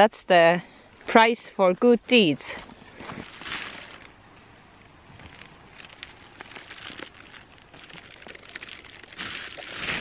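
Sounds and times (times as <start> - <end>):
plastic and fabric rustling: 2.8 - 4.1, 5.1 - 10.0.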